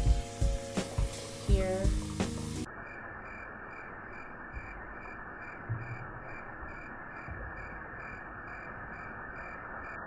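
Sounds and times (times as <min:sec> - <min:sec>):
tap water running: 0:00.0 - 0:02.7.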